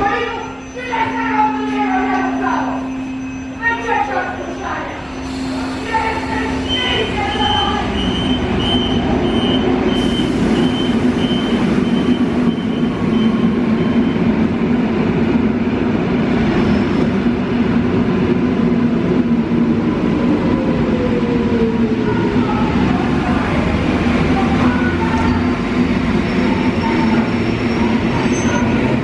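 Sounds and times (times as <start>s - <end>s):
high warning beeps: 0.0s - 14.3s
train equipment hum: 0.0s - 29.0s.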